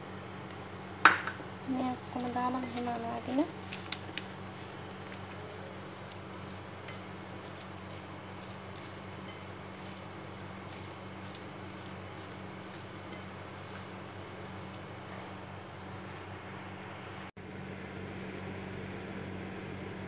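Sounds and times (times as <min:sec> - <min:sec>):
fingers squishing moist food: 0:02.8 - 0:15.0.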